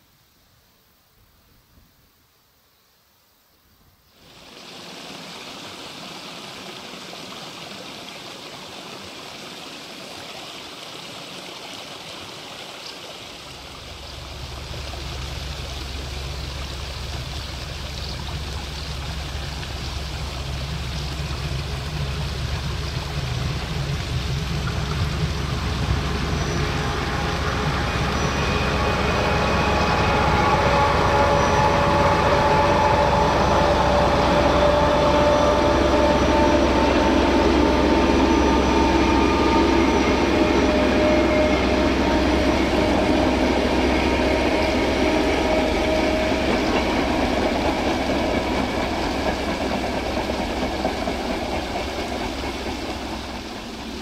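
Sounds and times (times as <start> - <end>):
running water rushing: 4.1 - 54.0
diesel locomotive rumble: 13.4 - 54.0
steady whine: 13.7 - 54.0.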